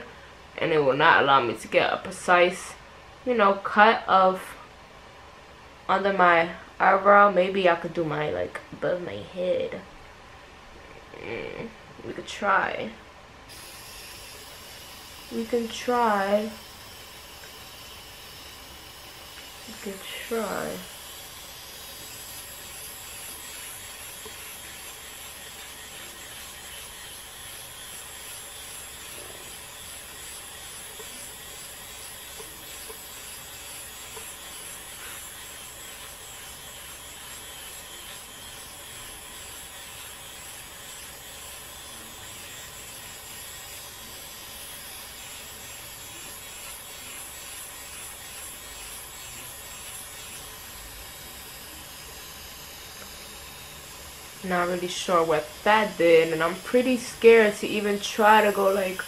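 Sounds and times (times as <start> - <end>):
small motor whirring with whine: 13.5 - 59.0.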